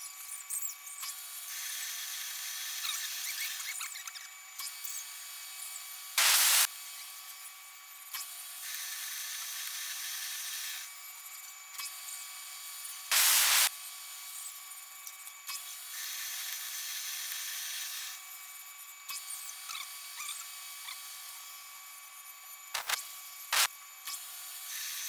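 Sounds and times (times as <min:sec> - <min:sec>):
hiss of thread cutting: 0:06.2 - 0:06.7, 0:13.1 - 0:13.7, 0:22.7 - 0:25.0.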